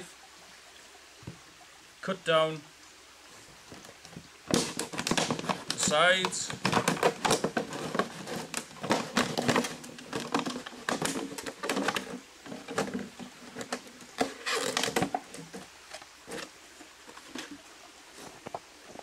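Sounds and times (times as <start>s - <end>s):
loud plastic crinkle: 4.5s - 15.6s.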